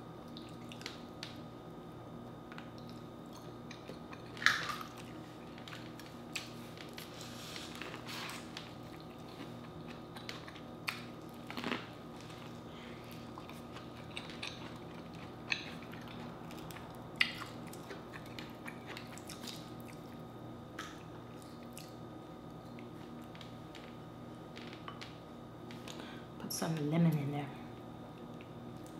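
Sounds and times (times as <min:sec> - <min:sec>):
faint steady hum: 0:00.0 - 0:28.9
seafood shells crackling and snapping: 0:02.5 - 0:07.1, 0:13.2 - 0:20.0
chewing and mouth sounds: 0:02.6 - 0:22.0.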